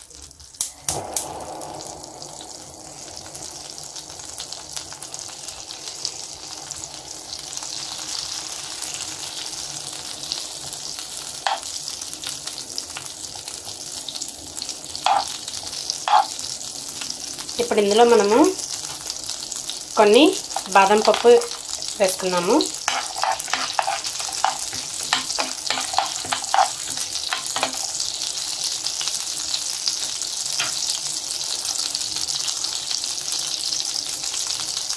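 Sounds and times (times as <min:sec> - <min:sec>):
butter sizzling in a pan: 0:00.0 - 0:34.9
spatula knocking against pan: 0:15.1 - 0:15.3, 0:16.1 - 0:16.3, 0:22.9 - 0:28.0.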